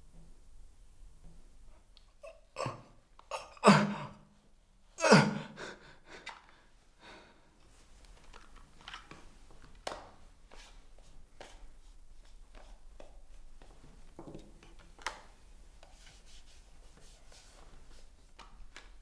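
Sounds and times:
man sighing: 2.2s - 4.2s, 5.0s - 6.4s.

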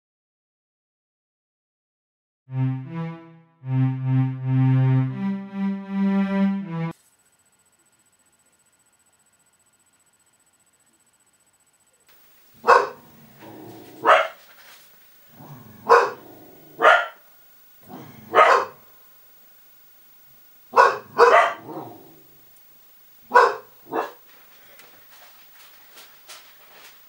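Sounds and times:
dog barking: 12.6s - 14.4s, 15.4s - 17.2s, 17.9s - 18.9s, 20.7s - 22.1s, 23.3s - 24.3s.

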